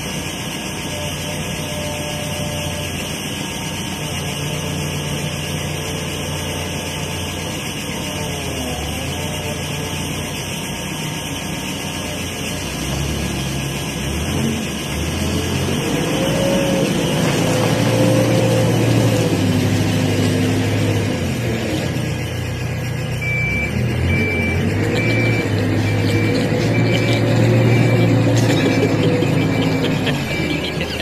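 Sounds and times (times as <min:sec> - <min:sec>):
diesel engine running: 0:00.0 - 0:31.0
rising whine: 0:23.2 - 0:31.0.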